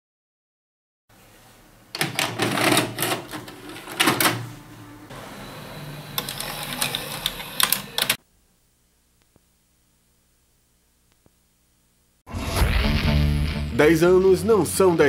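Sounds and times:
cassette carriage and gears clattering: 2.0s - 4.5s
tape mechanism whirring: 6.1s - 8.2s.

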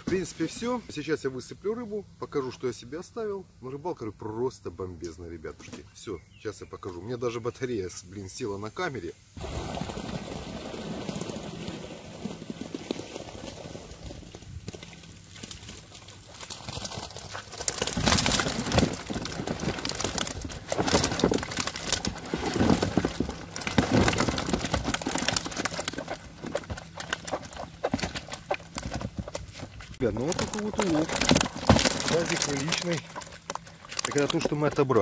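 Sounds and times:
fish flapping and slapping: 9.4s - 34.6s
fish tipped into plastic tub: 30.2s - 34.6s.

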